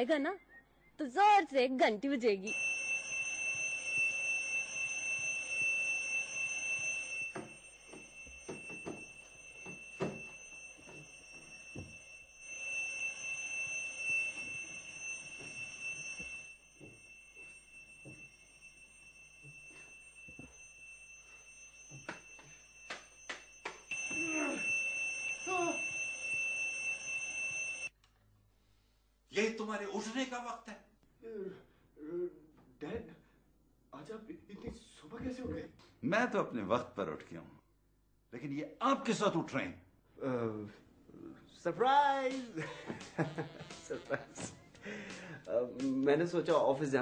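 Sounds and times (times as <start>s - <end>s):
alarm clock ringing: 2.5s - 27.9s, 42.2s - 47.0s.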